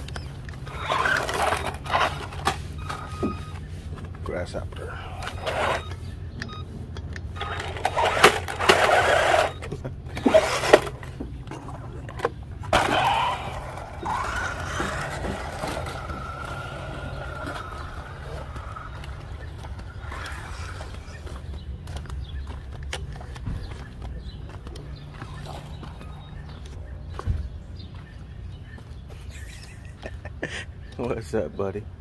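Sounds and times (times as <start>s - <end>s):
toy truck motor accelerating: 0.6s - 3.4s, 5.1s - 6.0s, 7.4s - 11.8s, 12.7s - 21.3s
thin steady motor whine: 7.3s - 11.0s, 12.7s - 21.5s.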